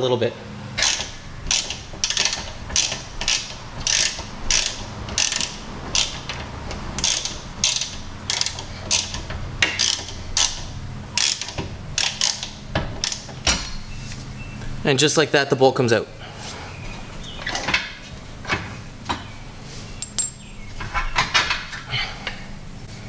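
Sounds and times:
ratchet wrench clicking: 0.8 - 6.4, 7.0 - 13.3.

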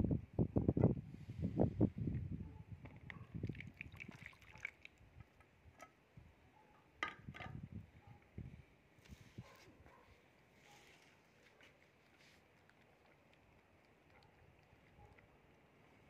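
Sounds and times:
milk pouring and splashing: 3.4 - 5.3.

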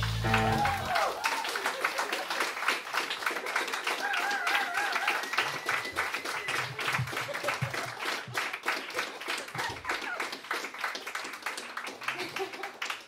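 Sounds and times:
audience clapping: 0.0 - 13.0
held whistle: 5.1 - 6.7.

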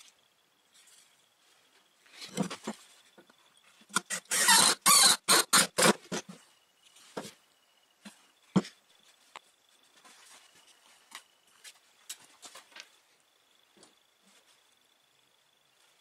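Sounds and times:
wood rubbing against wood: 3.9 - 6.2.

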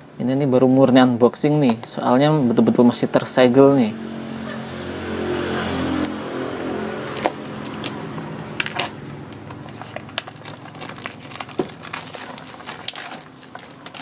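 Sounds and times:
plastic shrink-wrap crinkling: 6.8 - 14.0.

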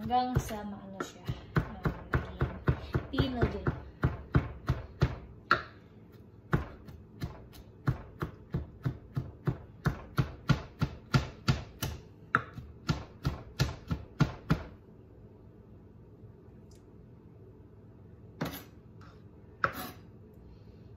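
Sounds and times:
knife chopping on plastic board: 0.0 - 5.8, 6.4 - 14.8, 19.6 - 20.0.

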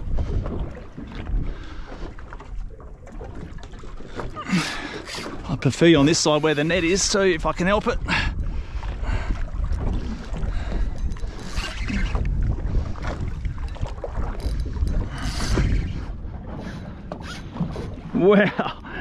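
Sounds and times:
water washing against boat hull: 0.0 - 19.0
wind buffeting microphone: 0.0 - 19.0.

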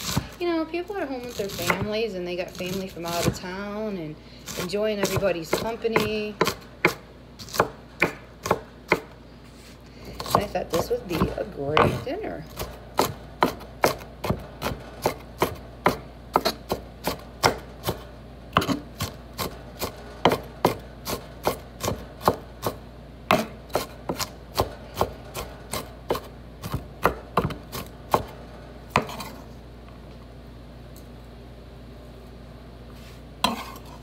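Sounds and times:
knife chopping on wooden board: 1.3 - 2.0, 4.5 - 9.2, 10.2 - 18.0, 18.6 - 28.3, 28.9 - 29.4.

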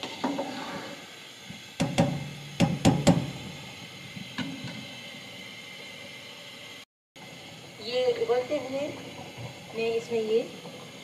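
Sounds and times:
stock boiling: 0.0 - 11.0.

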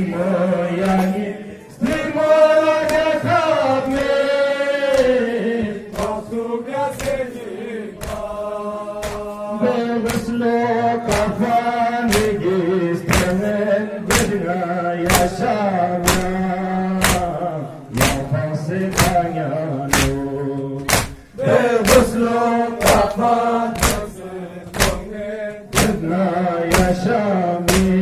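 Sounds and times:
men chanting a lament: 0.0 - 28.0
chest-beating slaps: 2.8 - 3.2, 4.9 - 5.2, 5.9 - 6.3, 6.9 - 7.4, 8.0 - 8.4, 9.0 - 9.4, 10.0 - 10.4, 11.0 - 11.4, 12.0 - 12.4, 13.1 - 14.4, 15.1 - 15.4, 16.0 - 16.4, 17.0 - 18.3, 18.9 - 19.3, 19.9 - 20.2, 20.8 - 22.2, 22.8 - 26.1, 26.7 - 27.0, 27.7 - 28.0.

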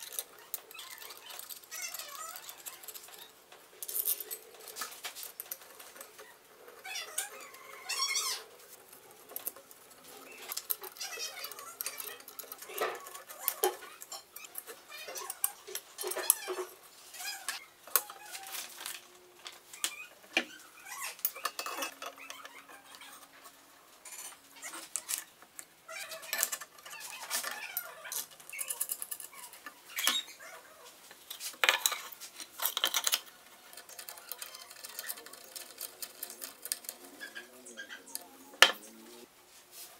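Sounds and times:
metal clinks and knocks: 0.0 - 8.3, 20.9 - 23.3.

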